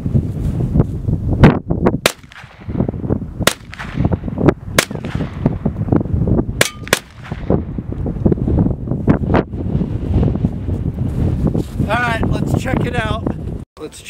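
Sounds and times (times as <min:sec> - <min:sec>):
wind buffeting microphone: 0:00.0 - 0:14.0
gunshots: 0:02.0 - 0:02.8, 0:03.4 - 0:04.2, 0:04.8 - 0:05.5, 0:06.6 - 0:07.6.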